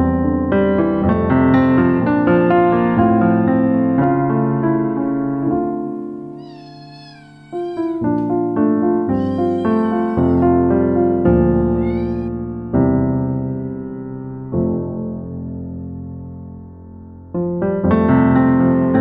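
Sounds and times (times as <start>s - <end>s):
piano instrumental music: 0.0s - 19.0s
kitten meowing: 5.0s - 12.3s.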